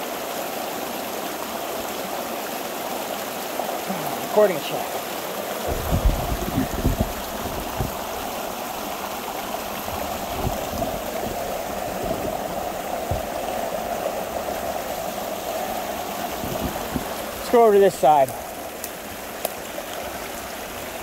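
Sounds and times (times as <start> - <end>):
water rushing through breach: 0.0 - 21.0
dull bumps: 5.6 - 8.2, 9.9 - 13.7.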